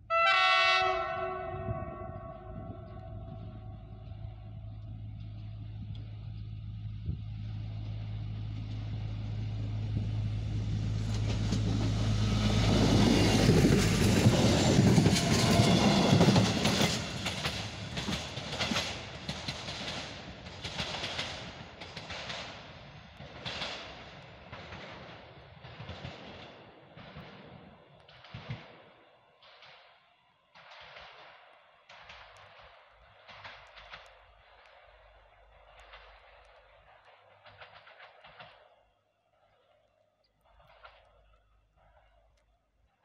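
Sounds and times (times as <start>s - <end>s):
diesel railbus engine hum: 0.0s - 21.9s
wheel clicks over rail joints: 13.5s - 22.5s.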